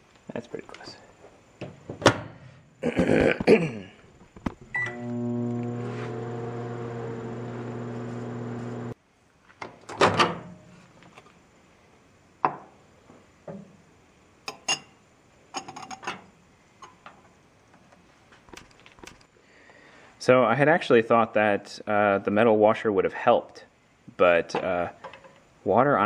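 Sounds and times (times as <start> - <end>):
microwave oven humming: 4.7 - 9.0.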